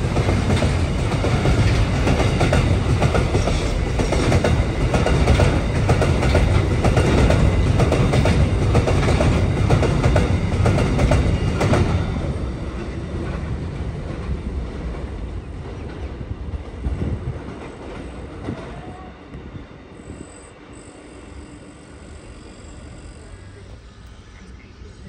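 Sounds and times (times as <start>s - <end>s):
freight train wagons clacking: 0.0s - 19.0s.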